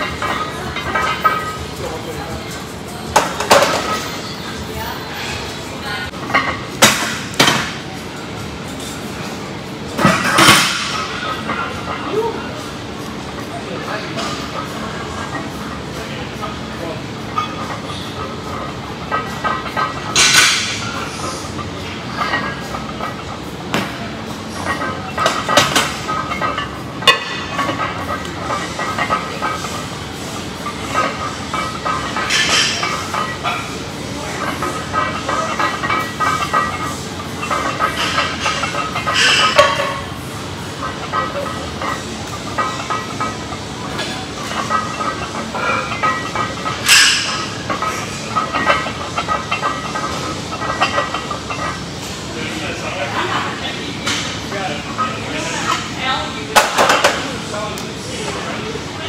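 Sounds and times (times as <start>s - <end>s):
barbell plates clinking: 17.3s - 52.2s.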